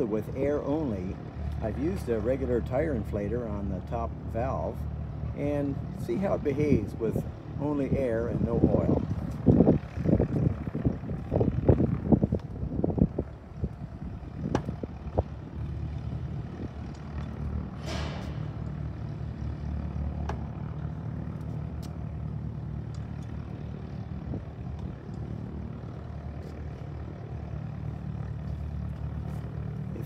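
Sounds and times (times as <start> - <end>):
engine idling drone: 0.0 - 30.0
sharp knocks of landing gear strut: 14.4 - 14.9, 17.8 - 18.8.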